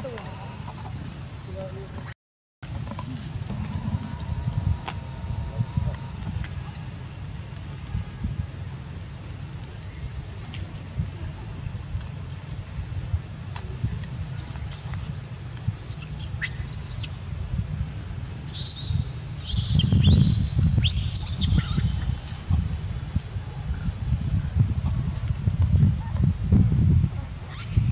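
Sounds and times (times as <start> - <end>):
monkeys squealing: 15.9 - 17.2.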